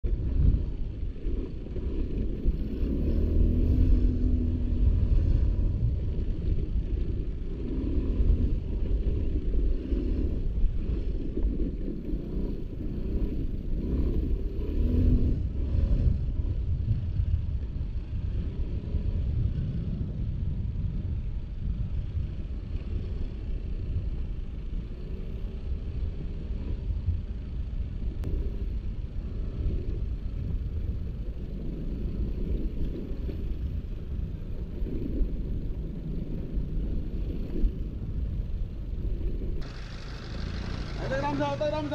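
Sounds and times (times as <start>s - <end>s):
scooter engine revving: 1.3s - 5.9s, 7.2s - 16.5s, 39.0s - 41.9s.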